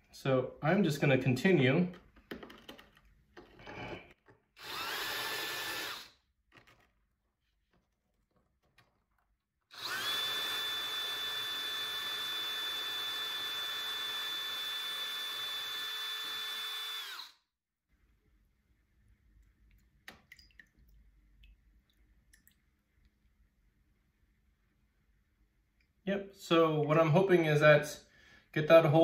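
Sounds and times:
drill grinding into rock: 3.6s - 6.2s, 9.7s - 17.4s.

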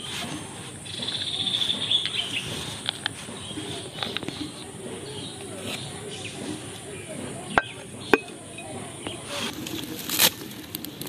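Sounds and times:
bird chirping trill: 0.8s - 9.3s.

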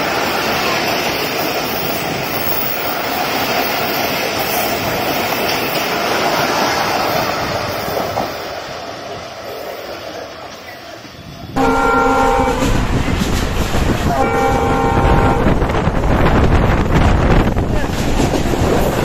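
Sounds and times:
rush of moving train: 0.0s - 19.0s
train coaches rolling past: 0.0s - 19.0s
locomotive air horn blasts: 11.6s - 12.8s, 14.1s - 15.6s.

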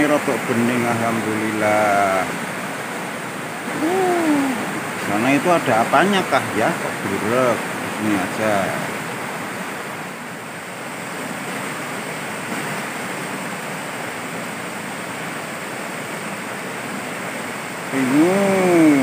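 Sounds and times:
river water rushing over rocks: 0.0s - 19.0s
person's voice: 3.7s - 8.8s, 17.9s - 19.0s.

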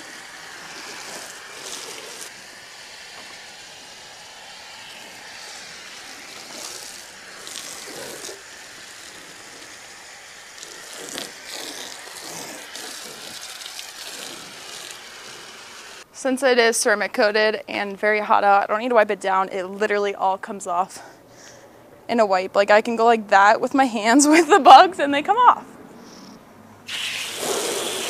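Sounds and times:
foam cannon spray hiss: 0.0s - 16.0s, 26.9s - 28.0s.

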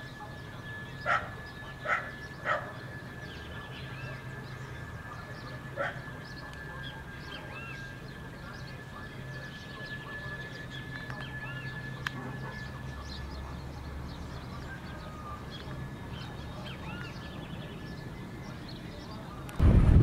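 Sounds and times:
birds chirping: 0.0s - 19.6s
steady high tone: 0.0s - 20.0s
distant dog barking: 1.0s - 2.8s, 5.7s - 6.1s.

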